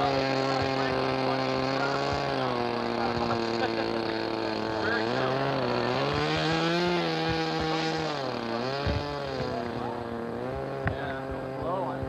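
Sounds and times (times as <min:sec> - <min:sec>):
model engine running: 0:00.0 - 0:12.0
sharp knocks: 0:06.1 - 0:09.6.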